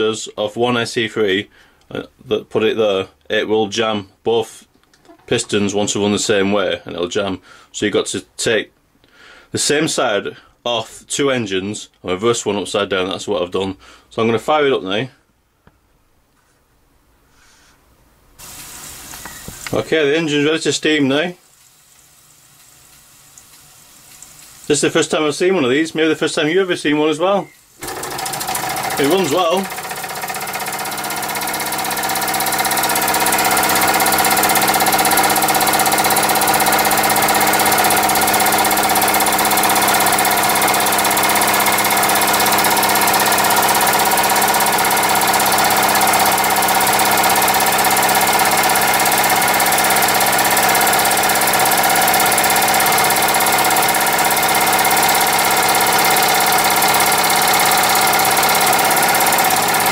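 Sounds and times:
model steam engine buzzing hum: 27.8s - 59.9s.

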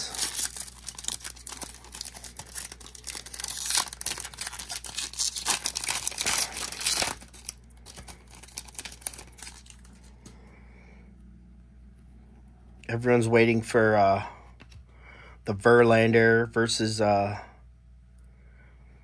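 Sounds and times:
card pack wrapper tearing and crinkling: 0.0s - 10.1s.

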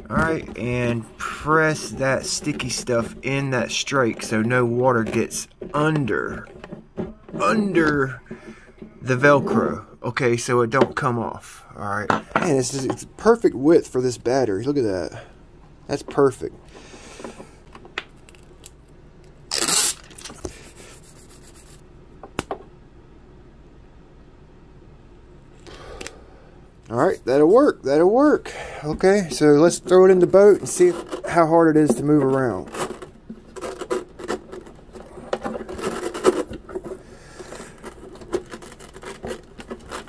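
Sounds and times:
shears cutting velcro tape: 19.5s - 20.4s
battery scraping against velcro: 19.5s - 21.8s, 32.4s - 40.0s.

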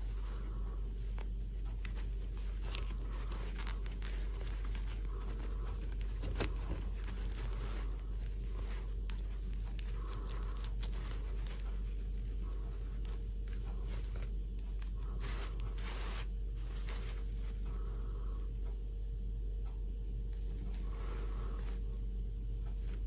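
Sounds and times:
plastic doll and fabric handling: 0.0s - 17.3s
steady low hum: 0.0s - 23.0s.

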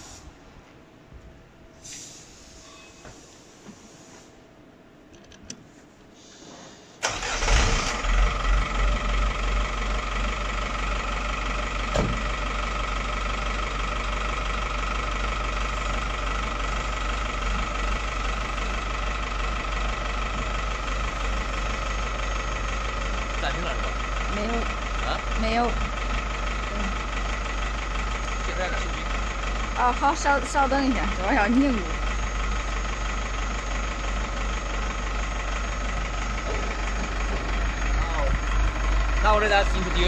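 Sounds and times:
truck engine idling: 7.0s - 40.0s.

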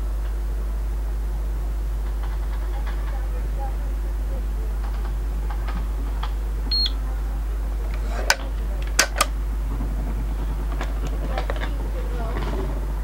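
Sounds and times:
geiger counter clicking: 1.8s - 7.0s, 7.7s - 13.0s
short high beep: 6.7s - 7.0s.

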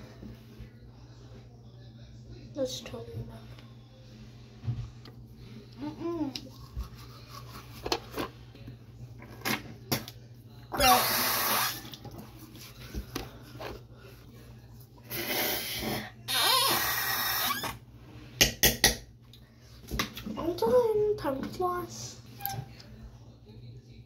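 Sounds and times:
toothbrush scrubbing teeth: 6.2s - 8.3s.

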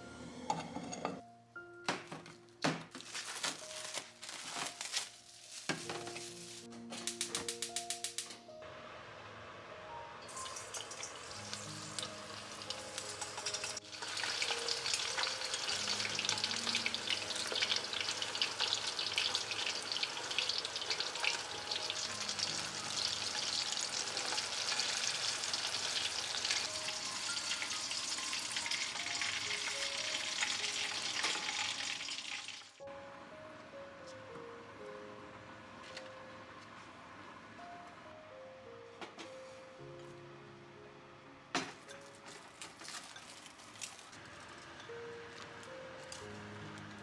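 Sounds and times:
food deep-frying in oil: 10.3s - 32.8s.

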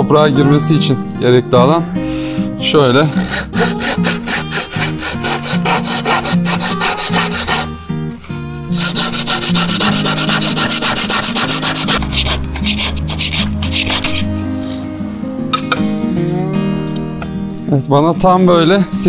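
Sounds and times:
background music: 0.0s - 19.0s
handsaw cutting wood: 3.1s - 7.8s, 8.7s - 14.9s.

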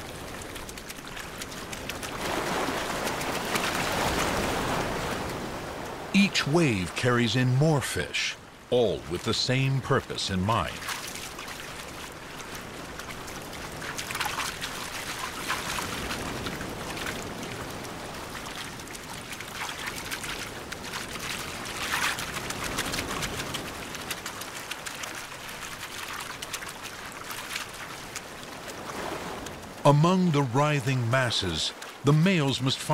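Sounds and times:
fish splashing in shallow surf: 0.0s - 29.9s
waves washing in: 0.0s - 32.9s.

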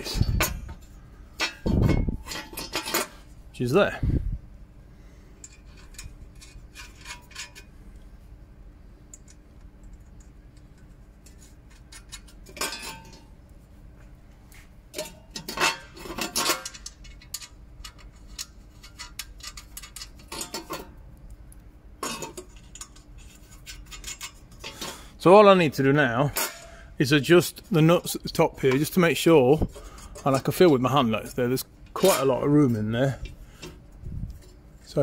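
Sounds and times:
metal clatters: 0.0s - 3.3s, 11.2s - 13.3s, 14.9s - 21.0s
metal tray clinking and scraping: 1.4s - 3.2s, 11.3s - 13.2s, 15.0s - 20.9s, 32.0s - 33.7s.

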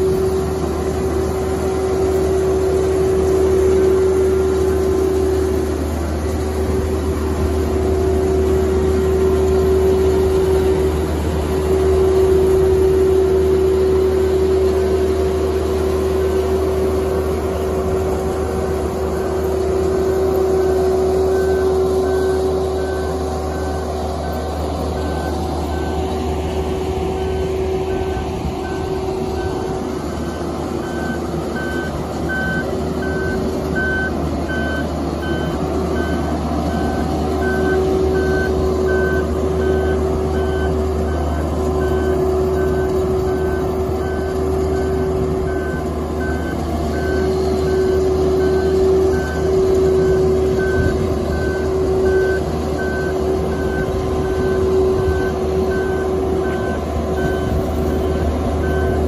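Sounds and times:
boat hoist engine droning: 0.0s - 59.0s
travel alarm beeping: 19.1s - 59.0s.

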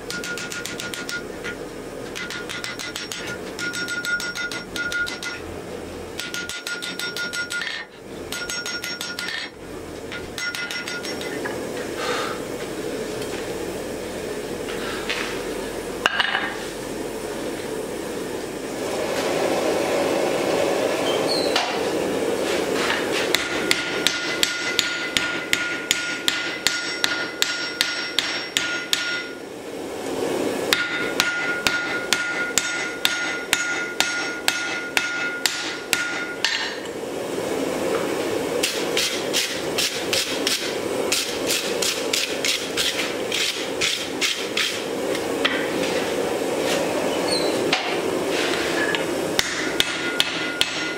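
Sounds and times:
anvil ringing: 0.0s - 1.6s, 2.2s - 5.4s, 6.2s - 9.5s, 10.1s - 11.4s, 23.4s - 29.4s, 30.7s - 36.7s, 49.4s - 50.9s
hammer striking metal on anvil: 0.0s - 5.4s, 6.2s - 11.5s, 23.2s - 29.4s, 30.7s - 36.9s, 49.4s - 50.9s.

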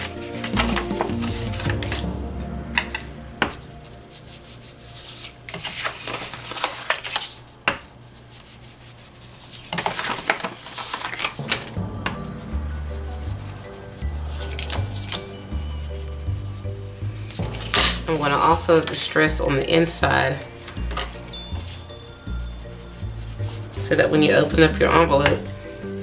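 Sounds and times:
paper rustling: 5.0s - 11.4s.

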